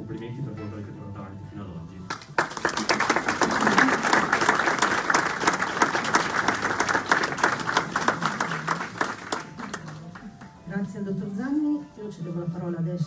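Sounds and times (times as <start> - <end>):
crowd applauding: 2.1 - 10.6.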